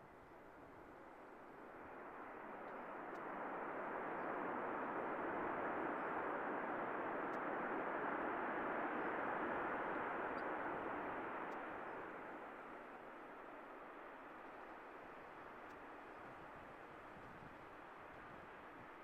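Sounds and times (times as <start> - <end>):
jet engines rushing: 0.9 - 14.4.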